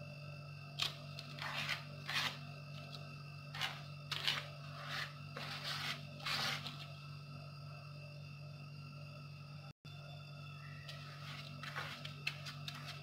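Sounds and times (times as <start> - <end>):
steady low hum: 0.0 - 13.0
pad rubbing over paper: 3.5 - 6.9, 11.0 - 13.0.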